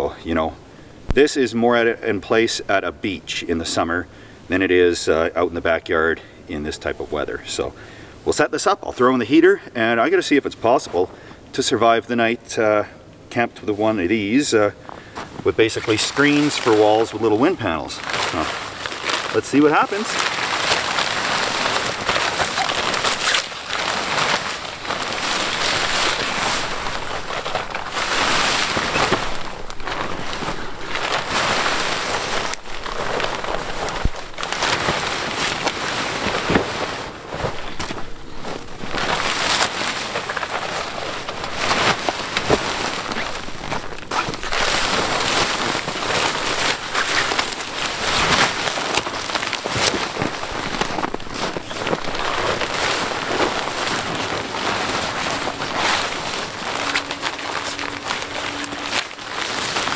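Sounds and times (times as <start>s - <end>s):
tent fabric rustling and flapping: 15.1s - 59.9s.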